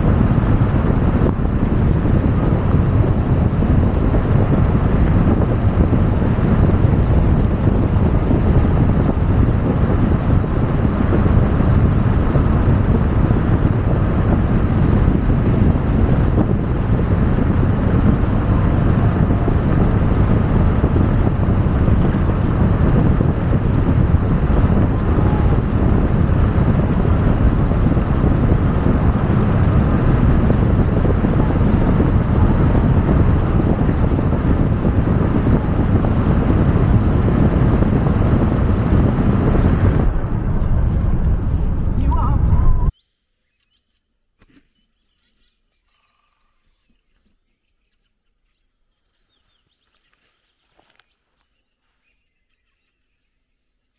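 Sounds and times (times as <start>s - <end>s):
car road noise: 0.0s - 42.9s
wind noise inside car: 0.0s - 42.9s.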